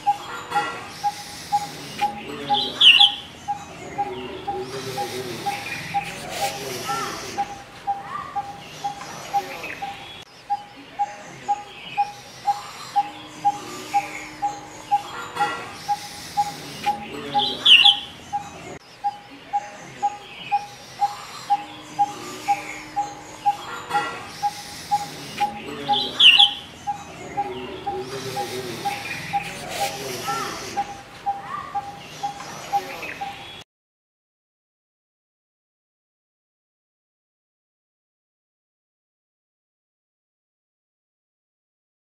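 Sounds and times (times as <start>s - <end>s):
bird repeating tuk note: 0.0s - 10.7s, 11.5s - 18.5s, 19.1s - 33.6s
faint bird twittering: 0.0s - 33.6s
high bird chirp: 0.0s - 33.6s.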